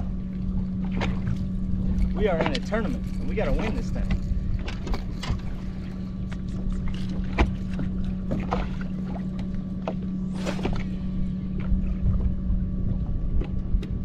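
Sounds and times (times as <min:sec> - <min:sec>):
water slapping against boat hull: 0:00.0 - 0:11.0
steady low hum: 0:00.0 - 0:14.0
fishing rod swishing: 0:10.3 - 0:11.0.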